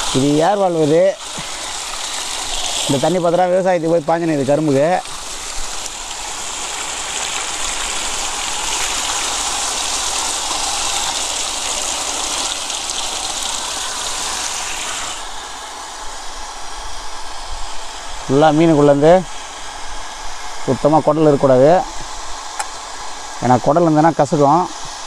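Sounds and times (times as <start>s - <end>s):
water gushing and splashing: 0.0s - 16.4s.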